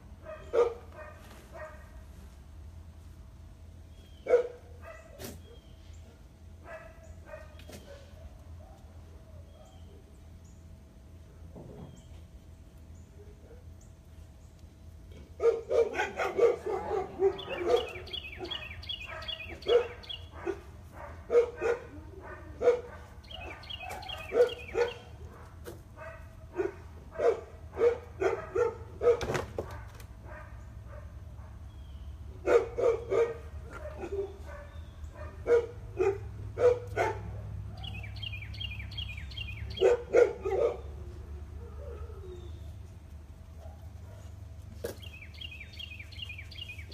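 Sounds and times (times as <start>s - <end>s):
dog barking: 0.2s - 2.0s, 4.2s - 8.9s, 15.4s - 31.6s, 32.4s - 38.2s, 39.7s - 41.0s.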